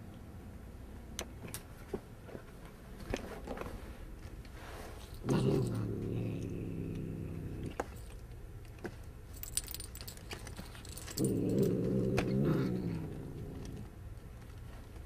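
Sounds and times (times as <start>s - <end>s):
cat growling: 5.2s - 7.8s, 11.2s - 13.9s
tinsel ball rustling and crinkling: 9.3s - 11.3s.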